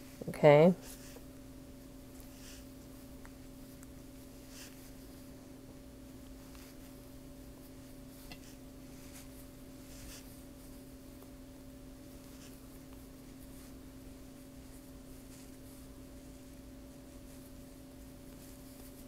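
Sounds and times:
steady low hum: 0.0 - 19.0
crochet hook scratching yarn: 8.2 - 10.8, 12.1 - 13.8.

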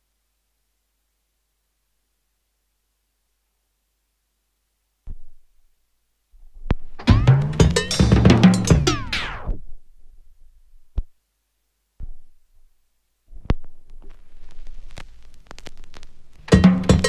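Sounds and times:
vinyl record music slowing down: 6.4 - 11.1, 13.3 - 17.0
song playing from record: 7.0 - 9.5, 14.8 - 17.0
sharp clicks handling record: 13.3 - 17.0
vinyl surface crackle and ticks: 13.3 - 17.0.

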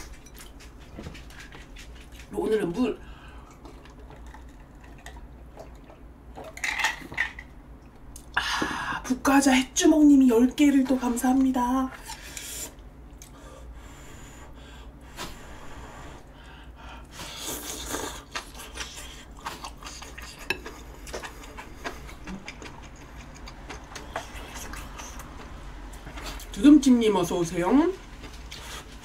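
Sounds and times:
chewing food: 0.0 - 7.4, 17.5 - 26.5.

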